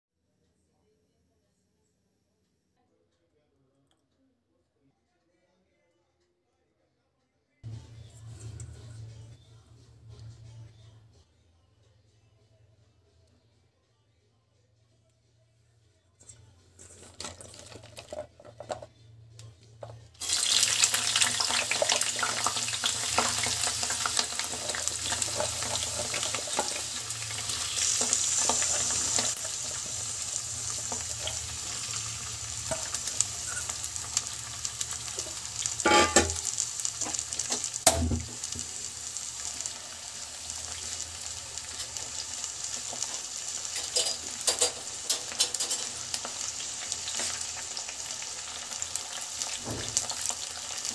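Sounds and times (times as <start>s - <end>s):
onions sizzling in hot oil: 20.2s - 50.9s.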